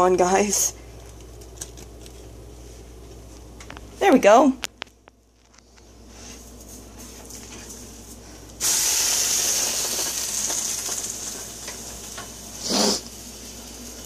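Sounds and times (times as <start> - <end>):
sandwich sizzling in frying pan: 8.6 - 14.0.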